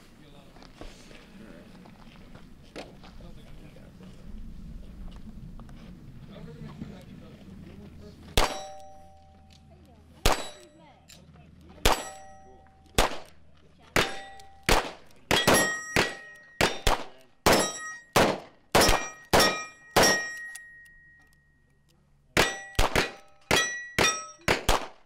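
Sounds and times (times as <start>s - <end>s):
gunshots: 8.4s - 8.9s, 10.2s - 10.6s, 11.8s - 12.3s, 13.0s - 13.4s, 14.0s - 20.5s, 22.4s - 25.0s
metallic ringing of steel targets: 8.4s - 13.2s, 14.0s - 24.7s.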